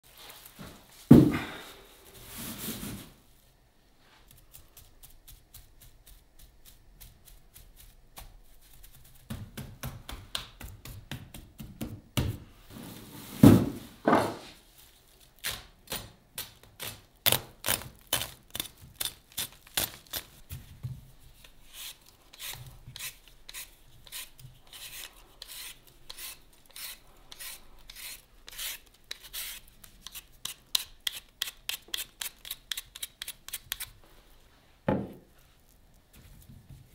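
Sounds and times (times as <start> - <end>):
heavy sack thumping on wooden table: 1.1 - 1.6, 13.3 - 14.6
knife cutting plastic mesh: 15.4 - 20.4
peeler scraping potato skin: 15.4 - 20.4, 21.4 - 34.0.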